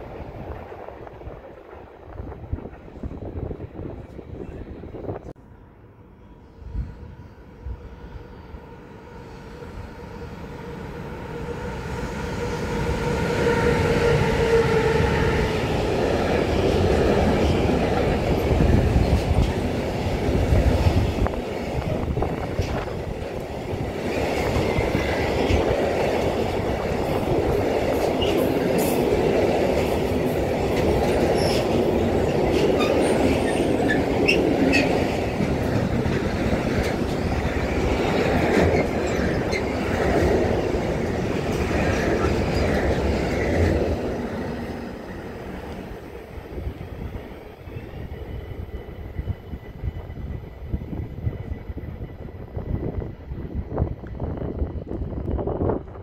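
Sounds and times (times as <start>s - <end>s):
electric locomotive whine: 0.0s - 56.0s
train wheel squeals: 30.8s - 35.9s, 36.8s - 40.4s, 41.5s - 43.8s.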